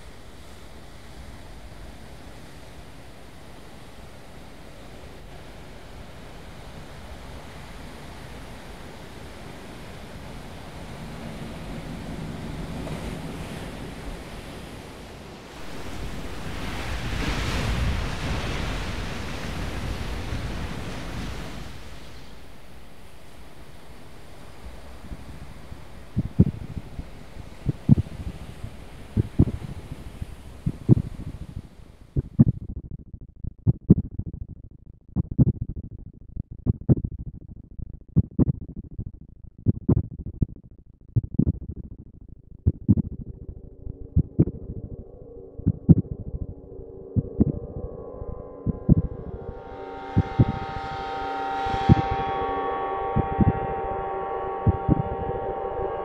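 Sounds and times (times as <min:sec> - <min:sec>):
heartbeat-like low double thumps: 0:26.2 - 0:26.9, 0:27.7 - 0:28.2, 0:29.2 - 0:29.7, 0:30.6 - 0:31.4, 0:32.1 - 0:47.9, 0:48.6 - 0:49.4, 0:50.2 - 0:50.6, 0:54.6 - 0:55.2
rush of noise: 0:43.0 - 0:56.0.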